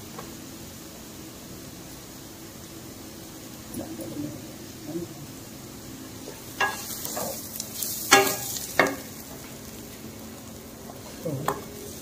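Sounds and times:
vegetables sizzling in oil: 0:00.0 - 0:12.0
spatula clacking against pan: 0:06.6 - 0:09.1.

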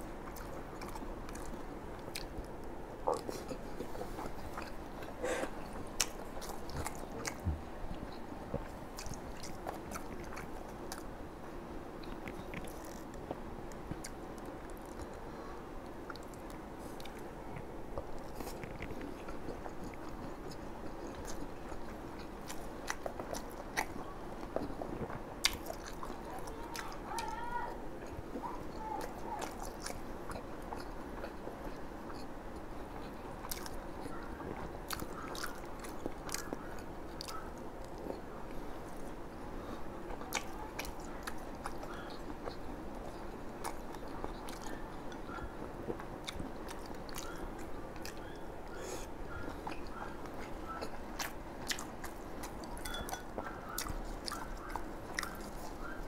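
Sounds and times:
close chewing and biting: 0:00.0 - 0:11.1, 0:12.0 - 0:56.0
crunching of fried food: 0:12.0 - 0:56.0.

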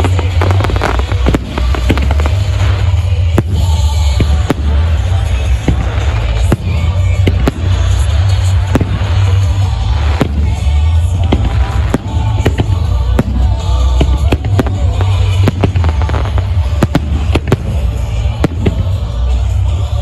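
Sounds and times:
firework bangs: 0:00.0 - 0:20.0.

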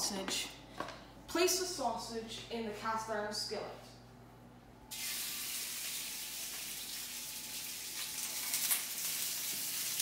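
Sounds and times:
sausage sizzling in oil: 0:04.9 - 0:10.0.

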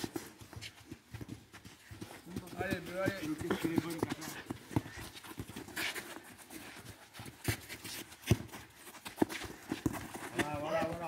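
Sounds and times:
footsteps running on turf: 0:00.0 - 0:11.0
person panting: 0:03.4 - 0:07.2.

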